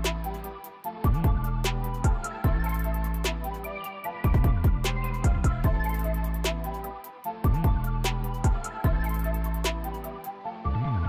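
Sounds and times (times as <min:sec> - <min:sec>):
electronic music with ticking beat: 0:00.0 - 0:10.6
sliding deep bass notes: 0:04.4 - 0:06.5.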